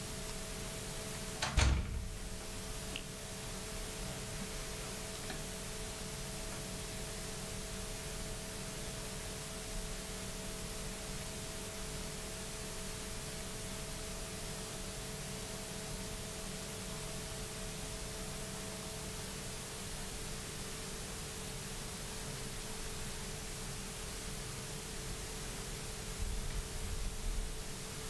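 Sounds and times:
steady hiss: 0:00.0 - 0:28.0.

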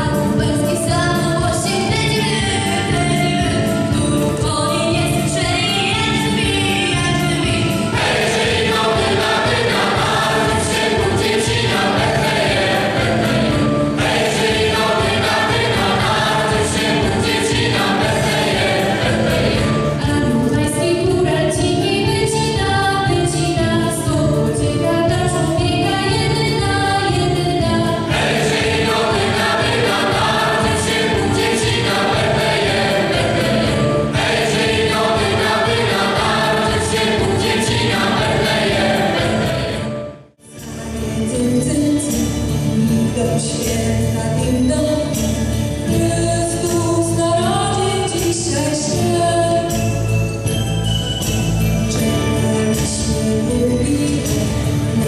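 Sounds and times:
instrumental accompaniment with beat: 0:00.0 - 0:42.8, 0:44.9 - 0:55.0
choir singing a carol: 0:07.9 - 0:20.0, 0:27.9 - 0:40.1.

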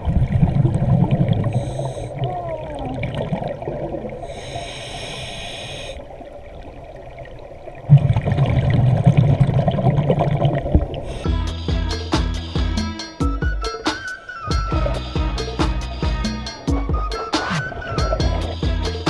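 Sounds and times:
exhaled bubbles rumbling: 0:00.0 - 0:04.4, 0:06.0 - 0:11.2, 0:16.8 - 0:18.8
air hissing through regulator: 0:04.3 - 0:06.0.

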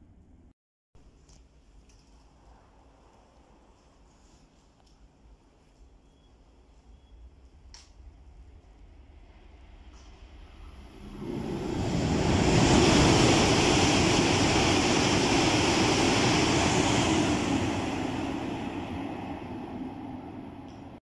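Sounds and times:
high-speed train passing: 0:06.7 - 0:21.0.

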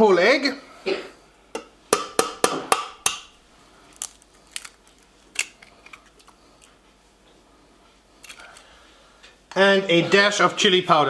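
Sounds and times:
egg tapping on metal bowl: 0:01.5 - 0:03.3
egg shell cracking clicks: 0:03.9 - 0:06.7.

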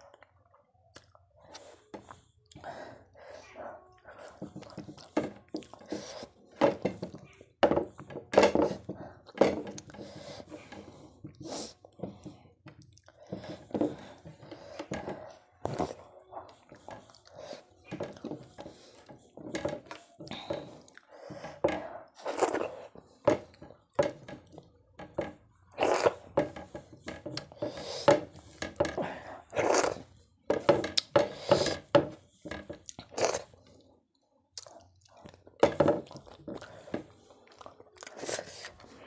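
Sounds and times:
wet chewing and mouth smacking: 0:00.0 - 0:02.7, 0:03.9 - 0:07.5, 0:09.0 - 0:14.6, 0:32.3 - 0:39.0.

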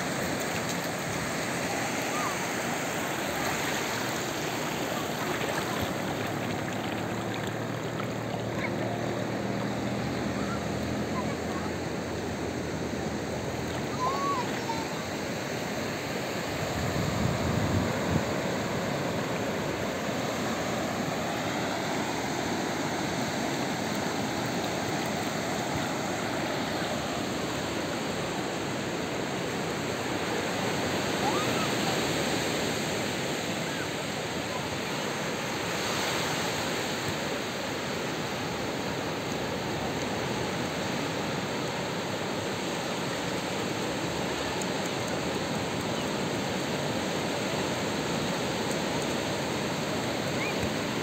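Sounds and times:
small waves breaking on beach: 0:00.0 - 0:51.0
water washing over sand: 0:00.0 - 0:51.0.

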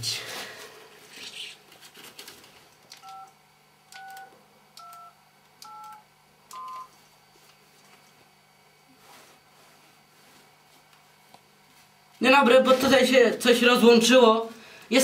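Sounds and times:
phone keypad dialling beeps: 0:03.0 - 0:03.3, 0:04.0 - 0:06.9.

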